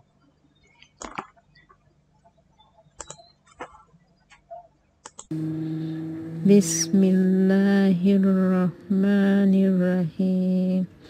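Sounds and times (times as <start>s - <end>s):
computer mouse clicks: 0.7s - 1.8s, 3.0s - 5.3s
recorded voice chanting: 5.3s - 11.0s.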